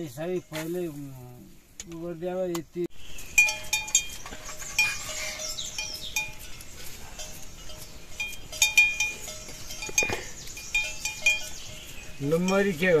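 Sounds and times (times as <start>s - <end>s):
livestock bells clinking: 3.0s - 13.0s.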